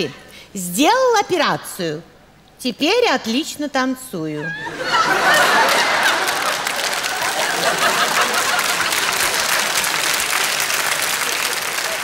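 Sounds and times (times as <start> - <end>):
audience laughter: 4.5 - 10.3
studio audience applauding: 5.1 - 12.0.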